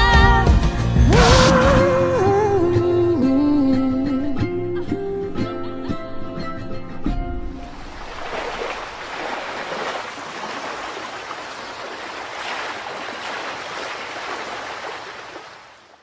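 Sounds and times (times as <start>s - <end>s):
water washing like gentle surf: 7.5s - 16.0s.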